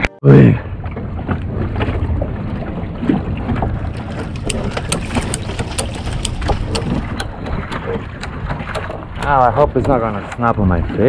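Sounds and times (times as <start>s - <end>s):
wind buffeting microphone: 0.6s - 11.0s
light clicks and knocks: 3.9s - 10.6s.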